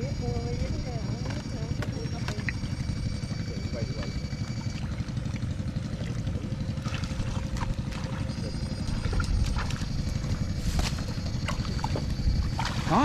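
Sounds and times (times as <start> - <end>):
thin high whine: 0.0 - 5.4
boat engine rumbling: 0.0 - 13.0.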